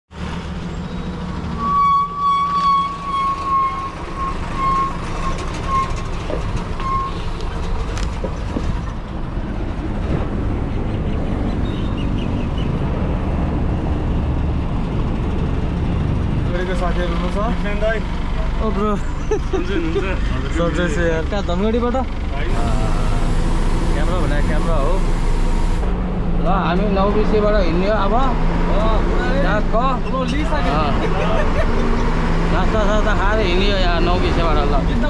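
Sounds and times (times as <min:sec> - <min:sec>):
bus engine rumble: 0:00.1 - 0:35.0
bus horn toots: 0:01.5 - 0:06.0.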